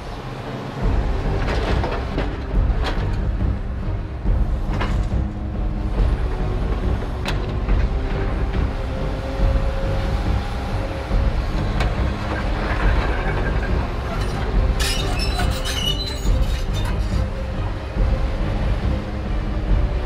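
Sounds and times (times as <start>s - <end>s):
excavator diesel rumble: 0.0s - 20.0s
metallic squealing and clinking: 12.3s - 17.4s.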